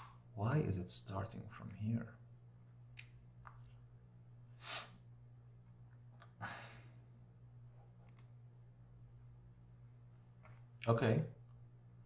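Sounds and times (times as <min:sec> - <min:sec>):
faint mouse clicks: 0:08.0 - 0:08.3.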